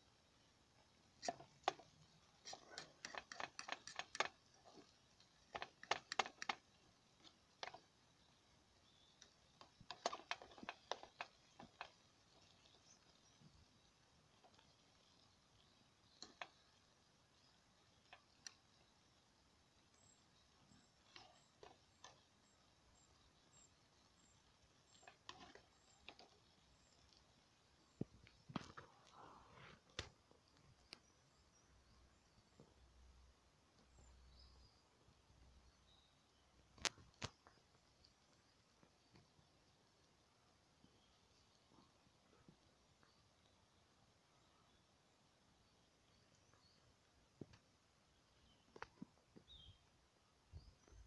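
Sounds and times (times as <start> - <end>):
fork clicking and scraping mess tin: 1.2 - 6.6.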